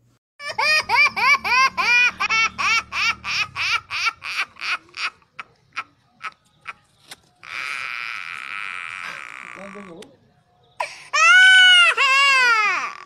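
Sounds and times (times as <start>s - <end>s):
man laughing hard: 0.4s - 5.1s
breathy gasps: 10.8s - 11.2s.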